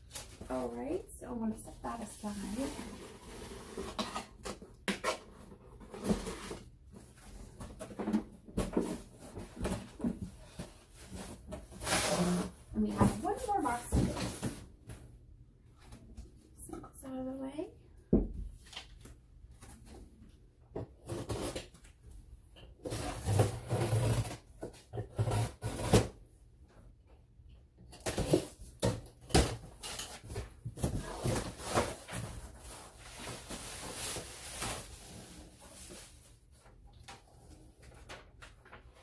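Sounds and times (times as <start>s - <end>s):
cardboard and packaging rustling: 0.0s - 15.1s, 27.9s - 39.0s.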